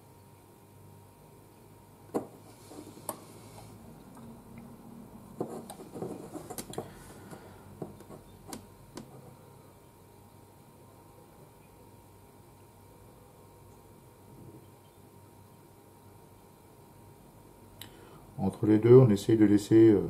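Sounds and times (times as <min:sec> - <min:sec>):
rubbing: 0:05.4 - 0:07.3.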